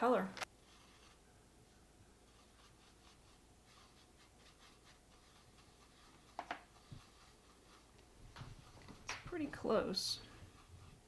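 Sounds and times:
paintbrush scraping plastic plate: 0.5s - 1.3s, 2.2s - 11.0s.

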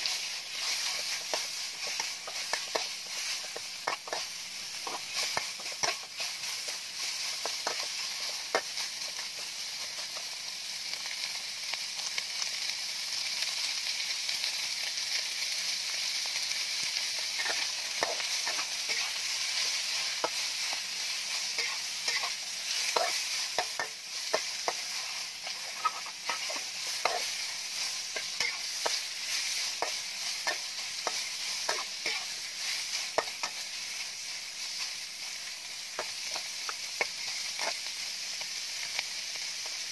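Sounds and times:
metal spatula scraping wok: 0.0s - 10.1s, 17.2s - 37.9s
pork sizzling in a wok: 0.0s - 39.9s.

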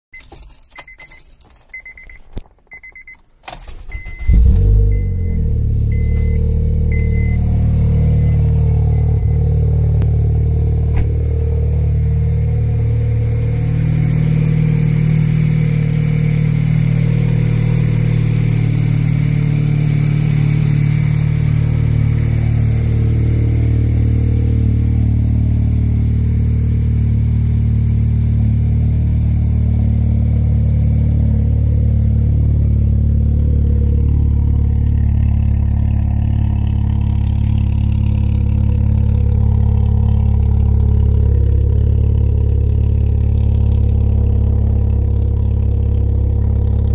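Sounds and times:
high beep: 0.1s - 3.2s, 3.9s - 10.0s
car engine cranking and starting: 0.2s - 46.9s
car engine idling: 3.6s - 46.9s.

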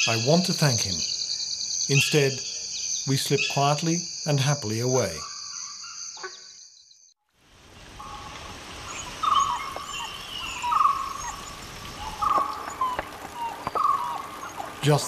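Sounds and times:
crickets trilling: 0.0s - 15.0s
dhole pups whistling cries: 12.0s - 14.8s.

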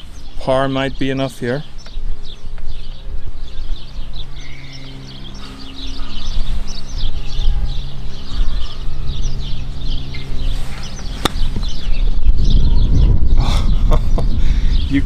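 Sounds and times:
small birds chirping: 0.0s - 15.0s
low rumble: 1.8s - 15.0s
golf club striking ball: 11.0s - 11.7s.

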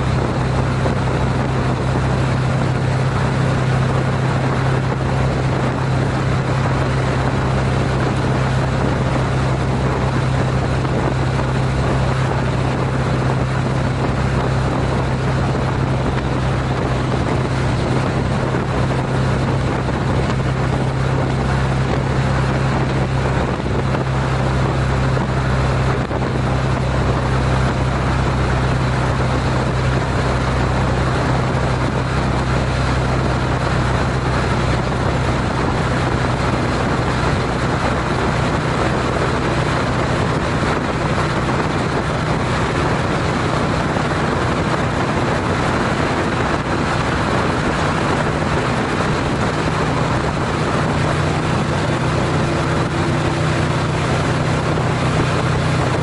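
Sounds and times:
motorcycle engine cruising: 0.0s - 56.0s
wind and road noise: 0.0s - 56.0s.

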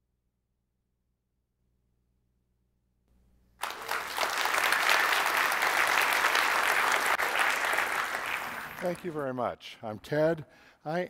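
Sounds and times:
audience applauding: 3.6s - 9.2s.

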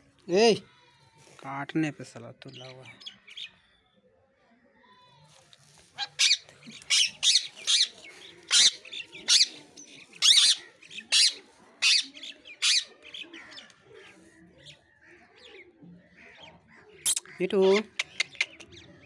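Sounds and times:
parakeet shrill calls: 6.0s - 12.9s
parakeet soft chatter: 6.0s - 14.8s, 17.1s - 19.0s.

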